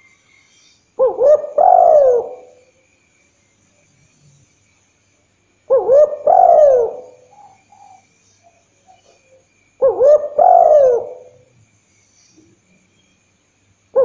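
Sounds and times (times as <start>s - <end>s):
dove cooing: 1.0s - 2.6s, 5.7s - 8.0s, 9.8s - 11.5s.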